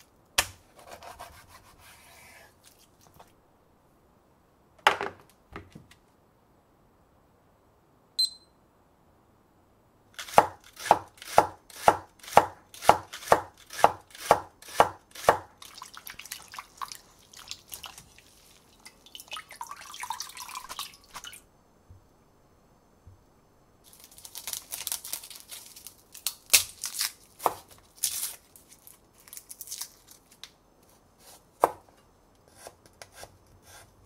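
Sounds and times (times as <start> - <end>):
kitchen timer beep: 8.2 - 8.6
knife chopping on wooden board: 10.3 - 15.5, 31.2 - 31.8
watery rustling in sieve: 15.6 - 21.4.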